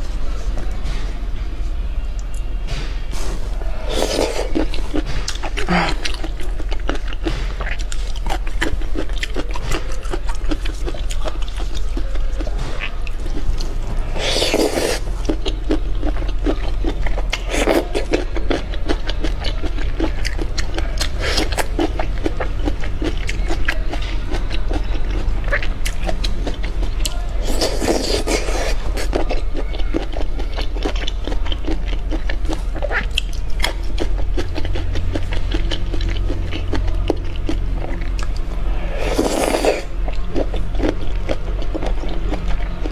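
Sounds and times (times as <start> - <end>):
steady low hum: 0.0 - 42.9
teeth chewing soft food: 3.1 - 42.9
wet slurps: 38.8 - 39.9.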